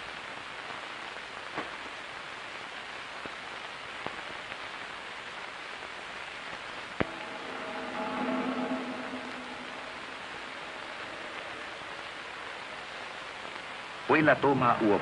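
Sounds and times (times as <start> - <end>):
film soundtrack hiss: 0.0 - 15.0.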